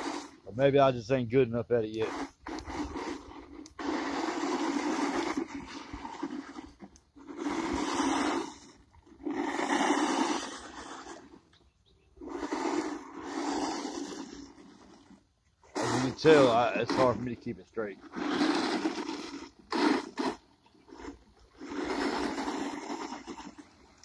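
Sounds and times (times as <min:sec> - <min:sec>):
toy truck electric motor: 0:00.0 - 0:00.4, 0:01.9 - 0:11.5, 0:12.2 - 0:24.0
tyres on loose dirt: 0:00.0 - 0:24.0.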